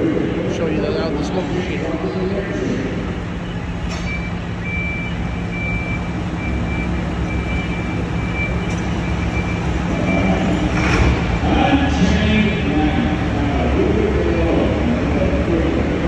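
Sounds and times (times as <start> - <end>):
machinery engines running: 0.0 - 16.0
faint high beeping: 3.4 - 10.6.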